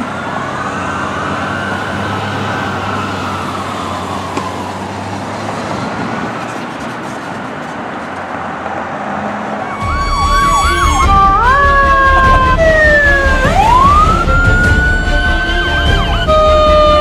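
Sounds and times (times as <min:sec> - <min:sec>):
electronic sirens: 0:00.0 - 0:07.4, 0:09.4 - 0:17.0.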